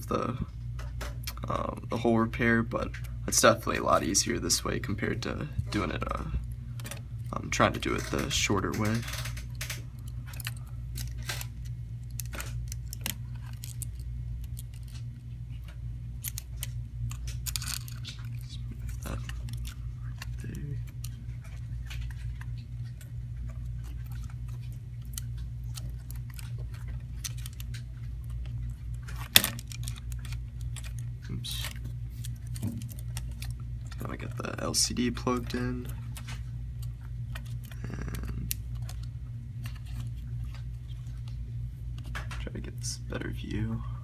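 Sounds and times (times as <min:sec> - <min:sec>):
low hum: 0:00.0 - 0:44.0
small parts clicking and tapping: 0:06.8 - 0:41.3.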